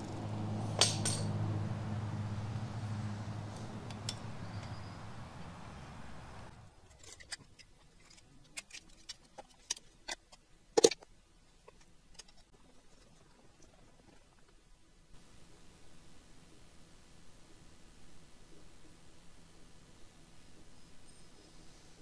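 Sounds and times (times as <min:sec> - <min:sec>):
metallic clinks of engine parts: 0:00.0 - 0:01.4, 0:03.8 - 0:05.0
steady low hum: 0:00.0 - 0:07.1.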